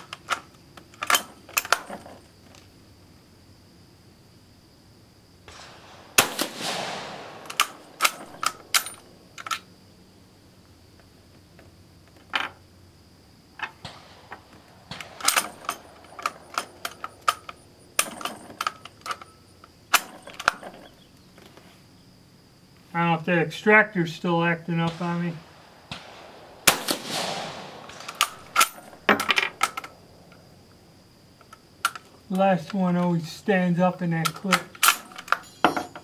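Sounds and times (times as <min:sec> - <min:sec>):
rifle shot: 0:05.5 - 0:09.8, 0:13.8 - 0:18.7, 0:24.7 - 0:30.6.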